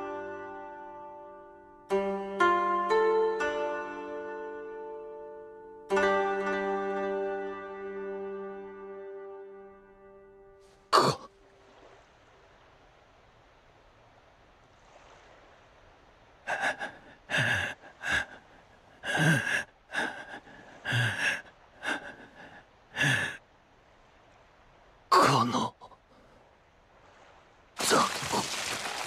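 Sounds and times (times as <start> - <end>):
man gasping and crying out: 19.0 - 23.4.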